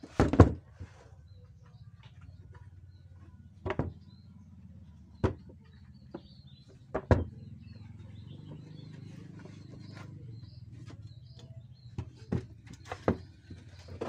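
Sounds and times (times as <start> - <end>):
wooden table panels knocking: 6.9 - 7.4.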